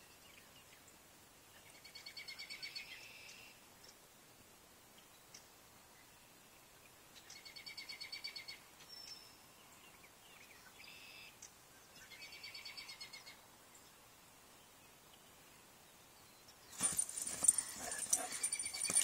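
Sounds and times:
songbird chirping trills: 0:05.0 - 0:19.0.

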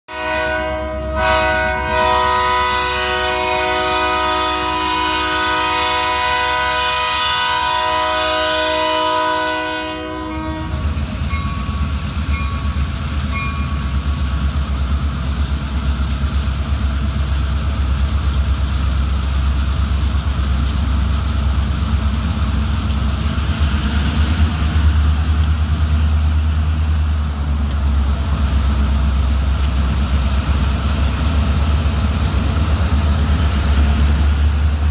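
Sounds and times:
locomotive air horn chord: 0:00.1 - 0:11.0
diesel engines rumbling: 0:01.2 - 0:34.9.

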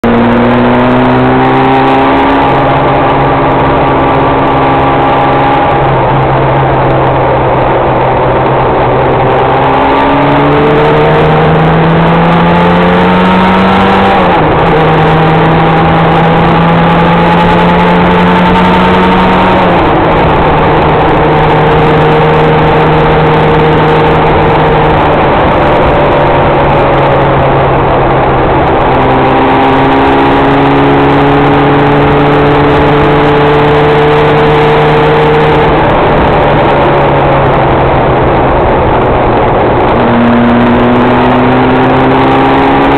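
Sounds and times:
vehicle engine accelerating: 0:00.0 - 0:42.9
wind and road noise: 0:00.0 - 0:42.9.

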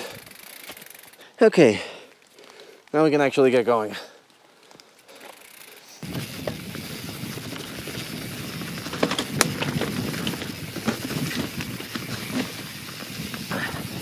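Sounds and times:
bike tyres on rough trail: 0:00.0 - 0:14.0
bike clacking over bumps: 0:05.2 - 0:14.0.

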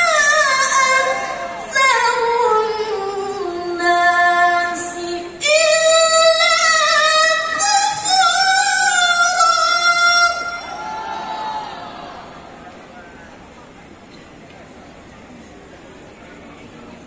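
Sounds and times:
woman reciting melodically: 0:00.0 - 0:10.8.

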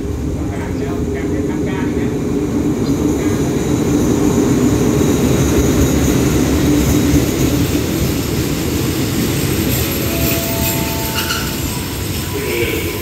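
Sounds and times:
train coaches rolling over rails: 0:00.0 - 0:13.0
locomotive engine drone: 0:02.8 - 0:13.0.

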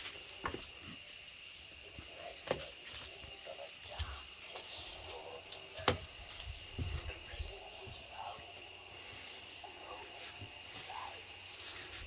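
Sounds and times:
light knocks and footsteps: 0:00.0 - 0:08.5
high-pitched insect chorus: 0:00.0 - 0:12.0.

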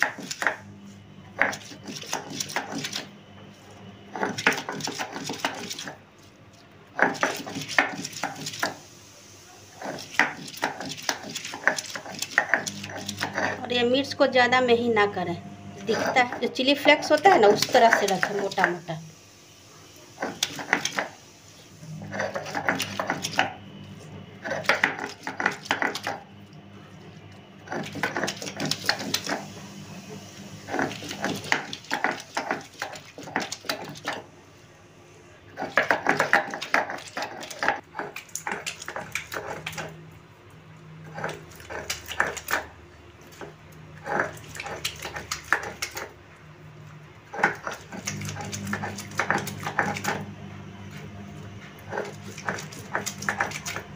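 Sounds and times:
stone roller scraping grinding stone: 0:01.4 - 0:03.0, 0:04.1 - 0:06.0, 0:09.8 - 0:14.0, 0:15.8 - 0:18.8, 0:20.2 - 0:21.2, 0:21.9 - 0:23.6, 0:24.4 - 0:26.2, 0:27.6 - 0:29.6, 0:30.5 - 0:34.2, 0:35.5 - 0:40.0, 0:41.0 - 0:42.7, 0:43.4 - 0:46.2, 0:47.3 - 0:50.3, 0:51.0 - 0:53.9.

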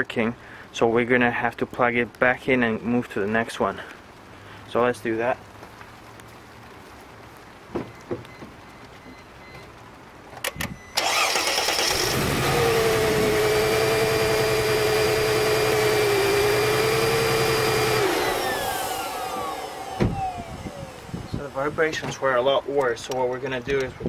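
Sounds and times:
engine idling rough: 0:11.8 - 0:20.3.

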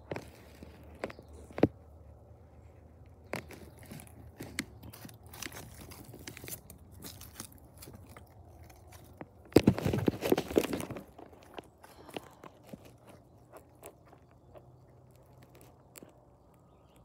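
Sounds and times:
rubbing over microphone: 0:08.7 - 0:11.6.

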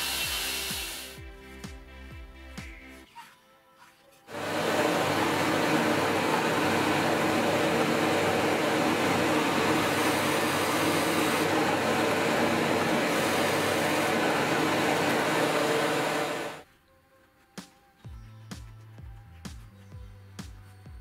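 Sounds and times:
drill press boring into wood: 0:00.0 - 0:01.2, 0:04.3 - 0:16.6
dust extraction hose sucking: 0:00.0 - 0:01.2, 0:04.3 - 0:16.6.

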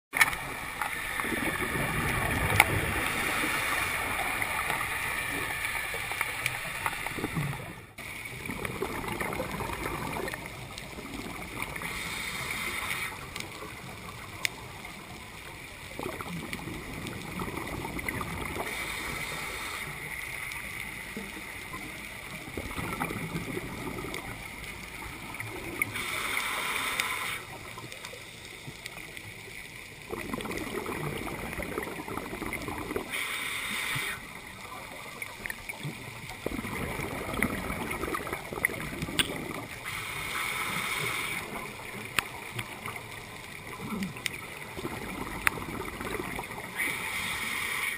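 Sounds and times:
steady underwater hiss: 0:00.2 - 0:47.9
regulator exhaust bubbles gurgling: 0:07.1 - 0:11.9, 0:15.8 - 0:18.7, 0:21.2 - 0:26.0, 0:30.0 - 0:33.1, 0:35.5 - 0:39.9, 0:41.4 - 0:46.8.

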